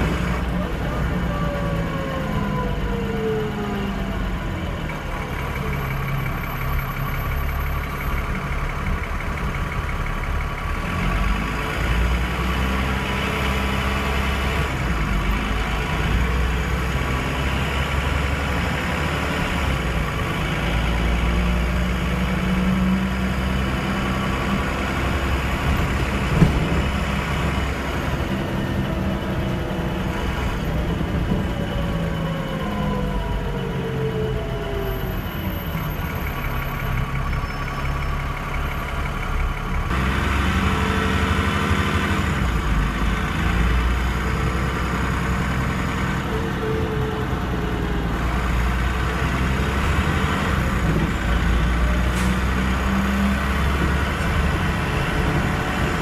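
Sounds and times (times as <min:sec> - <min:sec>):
bus engine idling: 0:00.0 - 0:56.0
engine whine: 0:00.0 - 0:56.0.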